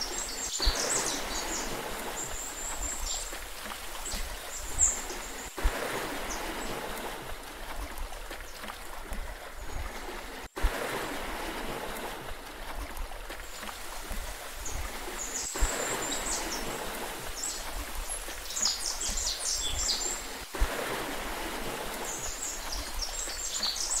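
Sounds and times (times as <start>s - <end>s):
small birds chirping: 0.0s - 3.4s, 13.6s - 20.3s, 22.1s - 24.0s
water rushing: 0.0s - 24.0s.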